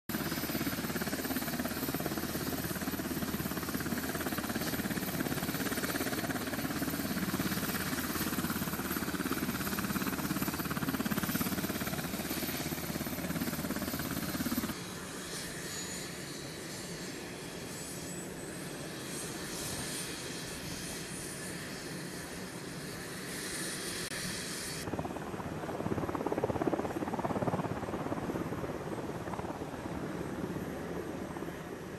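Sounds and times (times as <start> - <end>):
helicopter engines and rotor: 0.1 - 31.9.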